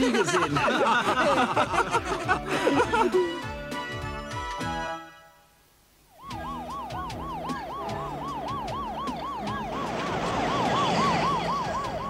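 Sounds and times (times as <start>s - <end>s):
ambulance siren yelping: 6.1s - 12.0s.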